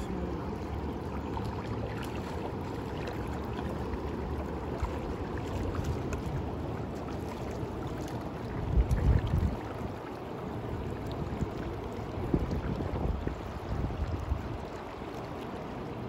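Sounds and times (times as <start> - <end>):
river current rushing: 0.0 - 12.4
wind on microphone: 8.5 - 10.1, 10.8 - 15.1.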